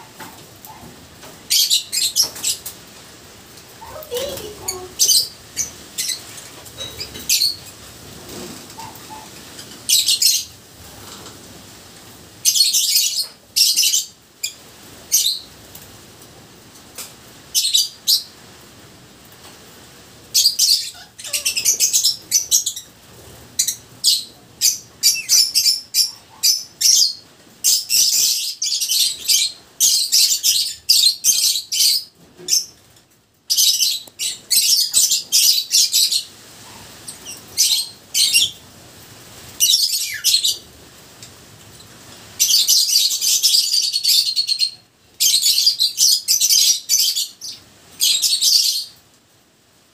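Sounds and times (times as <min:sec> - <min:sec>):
lovebirds chirping shrilly: 0:03.8 - 0:07.7.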